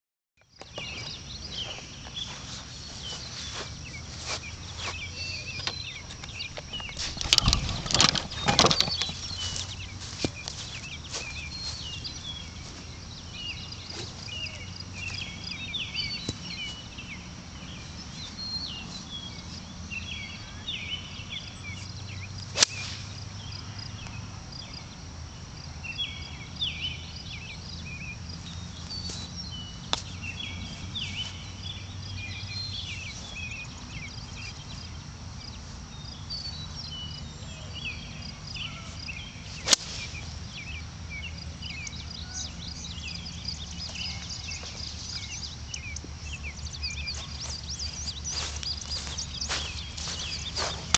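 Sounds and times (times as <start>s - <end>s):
high chirps of birds or insects: 0.4s - 50.9s
loud knocks and rustles: 6.9s - 9.4s.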